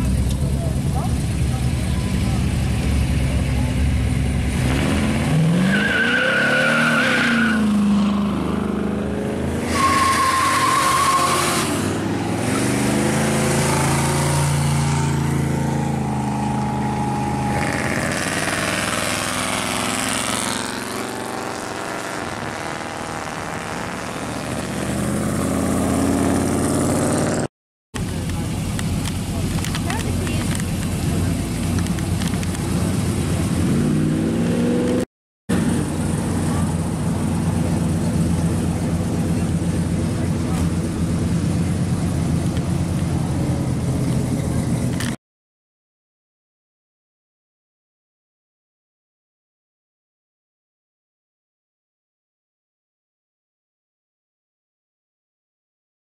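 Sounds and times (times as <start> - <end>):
car engine revving: 0.0 - 45.2
cars passing on road: 0.0 - 45.2
tire squeals: 5.2 - 8.6, 9.5 - 13.0.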